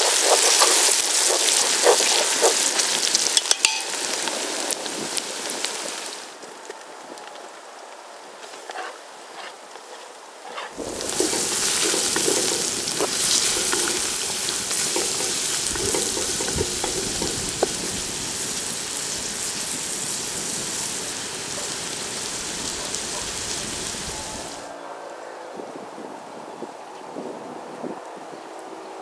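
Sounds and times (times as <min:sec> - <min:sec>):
food sizzling in frying pan: 0:00.0 - 0:06.4, 0:10.8 - 0:24.7.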